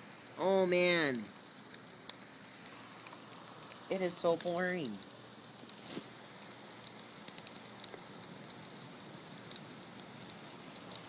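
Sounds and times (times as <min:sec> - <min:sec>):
individual raindrops ticking: 0:00.0 - 0:11.0.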